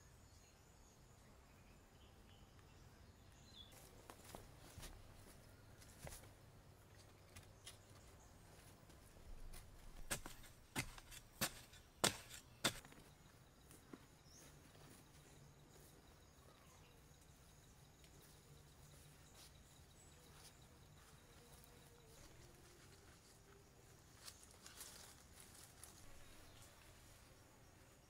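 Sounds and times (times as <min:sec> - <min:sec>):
faint outdoor background: 0:00.0 - 0:28.0
hoe chopping into soil: 0:09.5 - 0:13.0.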